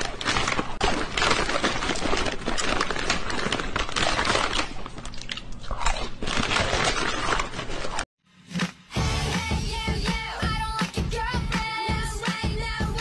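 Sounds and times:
cat crunching and chewing: 0.0 - 8.0.

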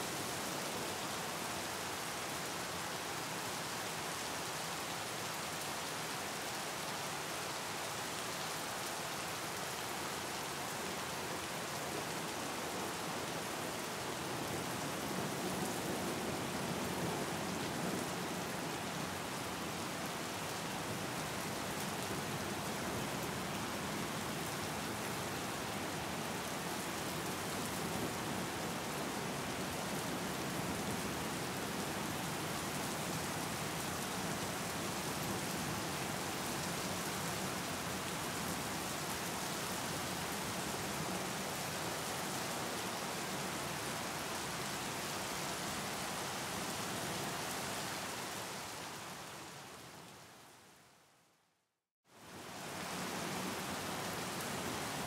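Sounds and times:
rain falling on water: 0.0 - 50.9, 52.1 - 55.0.

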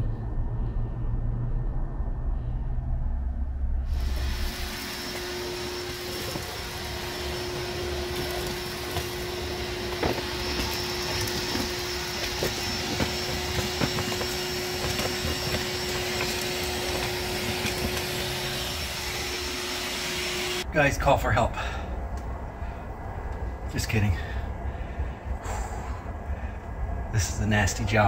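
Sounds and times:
hammer drill boring concrete: 3.9 - 20.6.

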